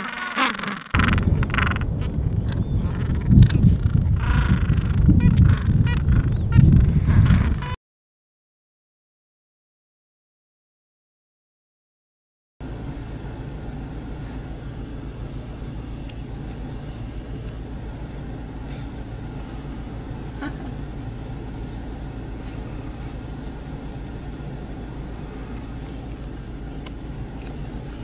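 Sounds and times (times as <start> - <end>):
vehicle engine idling: 12.6 - 28.0.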